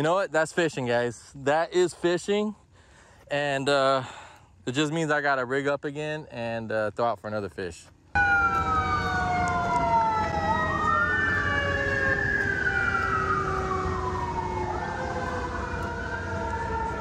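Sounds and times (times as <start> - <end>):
emergency vehicle siren wailing: 8.2 - 17.0.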